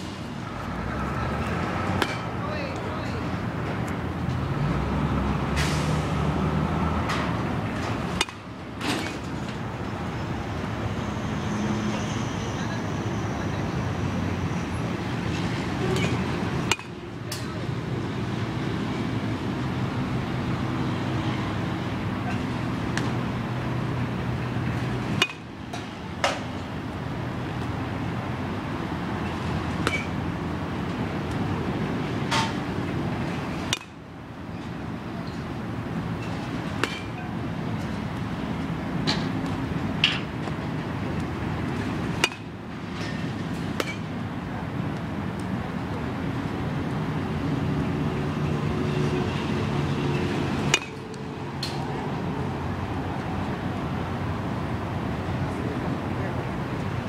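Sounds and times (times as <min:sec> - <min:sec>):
baseball bat hitting ball: 0:02.0 - 0:02.3, 0:08.2 - 0:08.4, 0:15.9 - 0:17.0, 0:25.1 - 0:26.5, 0:33.7 - 0:34.0, 0:36.8 - 0:37.2, 0:42.1 - 0:42.5, 0:50.6 - 0:51.0.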